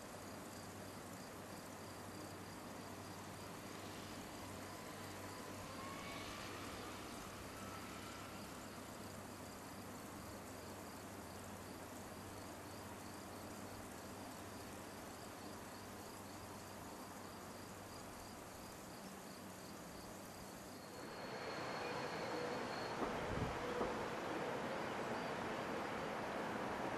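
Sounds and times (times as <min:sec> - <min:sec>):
insects chirping: 0:00.0 - 0:26.9
train approaching rushing noise: 0:03.8 - 0:08.9, 0:20.9 - 0:26.9.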